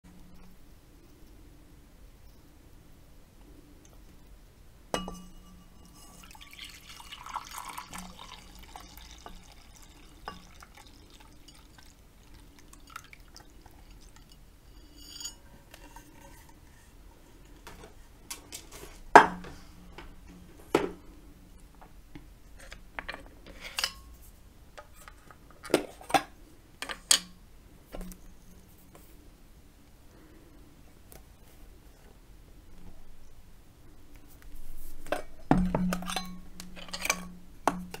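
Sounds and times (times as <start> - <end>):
tableware knocks and clinks: 5.0 - 6.4, 14.8 - 15.4
milk pouring into a bowl: 5.8 - 14.4.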